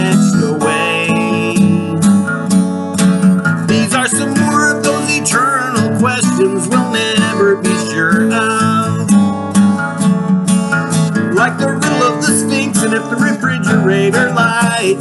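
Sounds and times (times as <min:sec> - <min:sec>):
man singing: 0:00.0 - 0:02.4, 0:03.6 - 0:09.4, 0:11.2 - 0:15.0
acoustic guitar strummed: 0:00.0 - 0:15.0.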